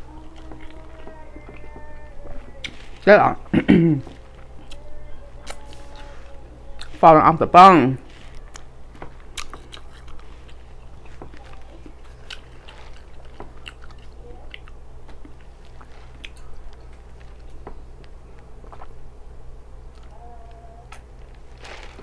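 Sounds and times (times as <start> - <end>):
steady low hum: 0.0 - 22.0
wet chewing mouth clicks: 4.6 - 6.1, 9.3 - 17.6.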